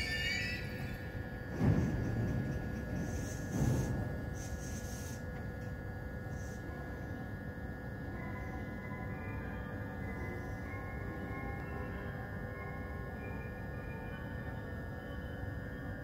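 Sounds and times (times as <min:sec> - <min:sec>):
rail traffic rumble: 0:00.0 - 0:16.0
background music of held tones: 0:08.4 - 0:16.0.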